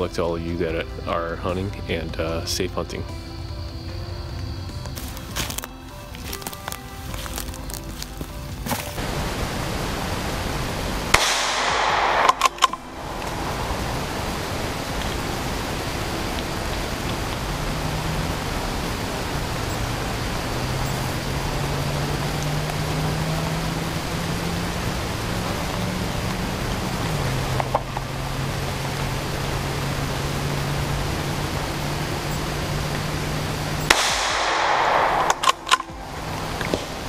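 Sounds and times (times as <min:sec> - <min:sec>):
steady rushing noise: 0:07.8 - 0:37.0.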